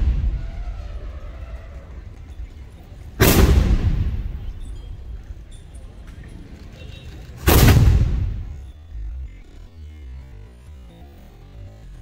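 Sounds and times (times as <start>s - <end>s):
cannon shots booming: 0.0s - 0.9s, 3.2s - 4.6s, 7.4s - 8.6s.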